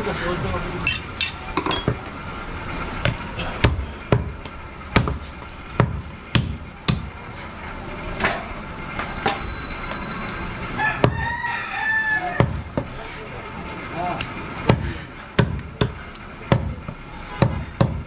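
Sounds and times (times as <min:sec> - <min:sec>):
cleaver chopping meat on wood: 0:04.9 - 0:05.2, 0:05.8 - 0:07.1.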